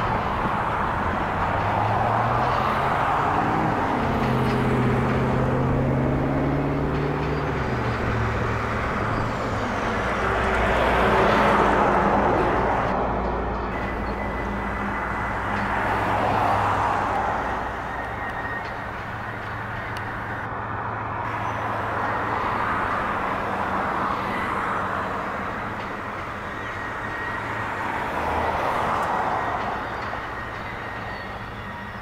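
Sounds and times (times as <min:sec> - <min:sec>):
train wheels rumbling on rail: 0:00.0 - 0:32.0.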